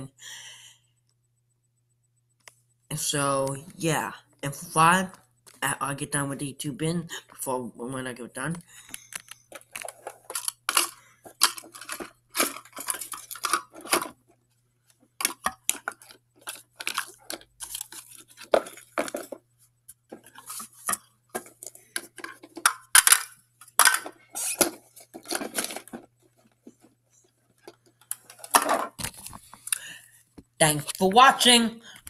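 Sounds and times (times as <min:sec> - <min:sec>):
plastic toy clicking and clattering: 0:08.9 - 0:14.2, 0:15.2 - 0:19.4, 0:20.1 - 0:26.8, 0:27.6 - 0:29.8.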